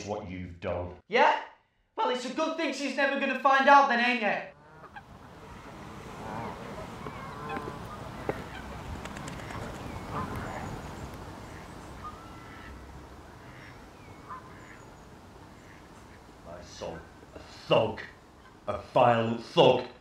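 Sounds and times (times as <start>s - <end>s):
short bird calls: 4.8s - 16.3s.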